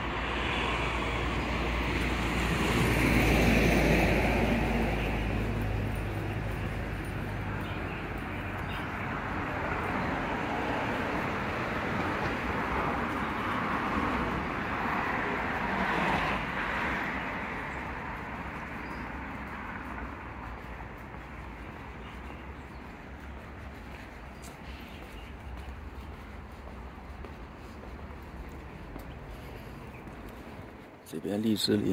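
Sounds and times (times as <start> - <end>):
vehicle passing: 0.0 - 31.9.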